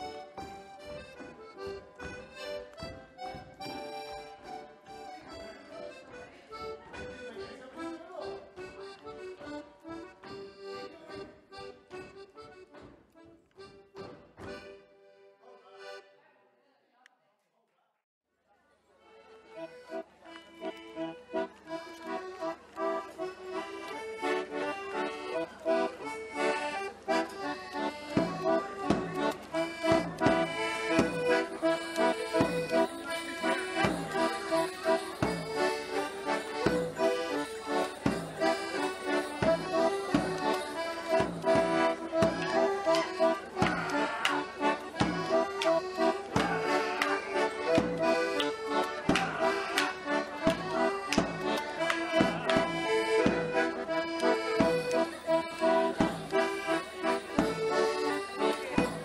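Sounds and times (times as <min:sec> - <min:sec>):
traditional instrumental tune: 0:00.0 - 0:15.3, 0:19.2 - 0:59.0
steady beat: 0:25.7 - 0:59.0.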